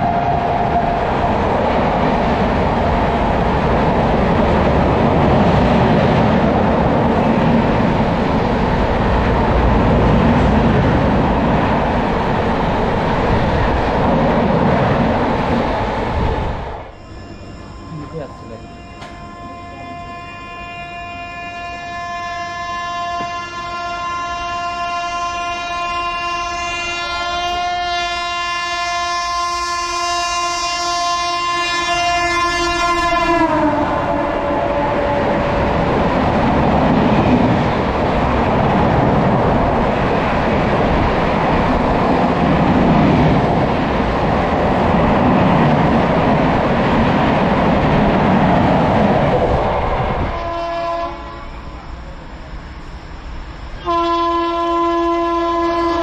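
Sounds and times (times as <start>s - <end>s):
train rushing past: 0.0s - 56.0s
train horn: 16.8s - 35.6s, 50.0s - 52.0s, 53.8s - 56.0s
distant train horn: 16.8s - 35.7s, 50.0s - 52.0s, 53.8s - 56.0s.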